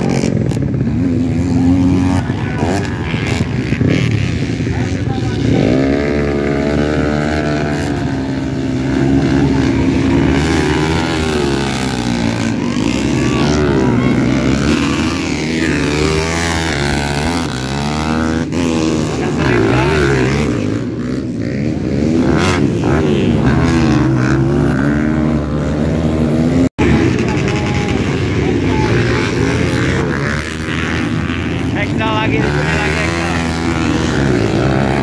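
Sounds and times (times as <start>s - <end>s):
motocross bikes revving: 0.0s - 35.0s.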